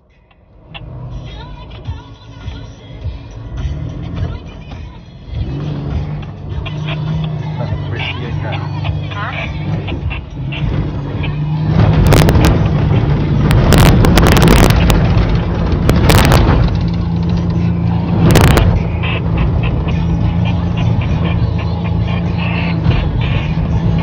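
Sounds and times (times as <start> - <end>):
vehicle engine under load: 0.0 - 24.0.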